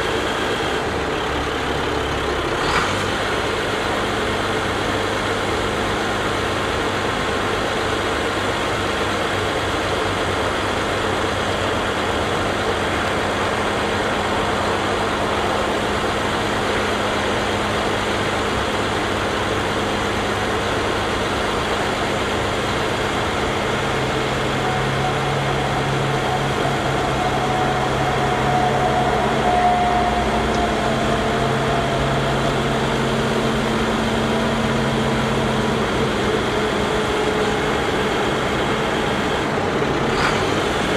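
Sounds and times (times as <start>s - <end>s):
diesel truck engine running: 0.0s - 40.9s
low hydraulic hum: 0.0s - 40.9s
faint high whine: 12.4s - 39.5s.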